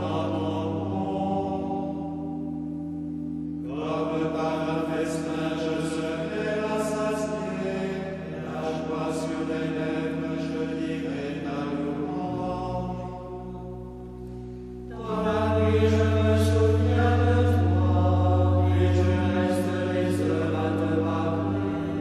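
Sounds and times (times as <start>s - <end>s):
long held low notes: 0.0s - 22.0s
slow chanting voices: 0.0s - 22.0s.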